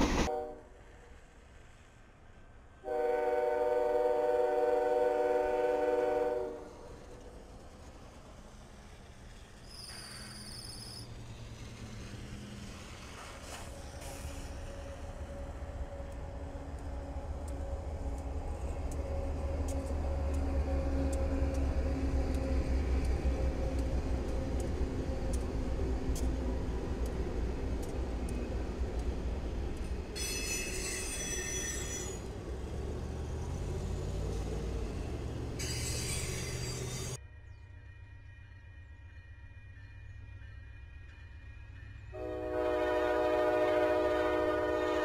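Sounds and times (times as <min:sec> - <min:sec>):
diesel locomotive engine drone: 0:00.0 - 0:45.0
train wheel clicks: 0:07.0 - 0:37.2
high-pitched wheel squeals: 0:09.6 - 0:11.2, 0:30.2 - 0:32.3, 0:35.6 - 0:37.2.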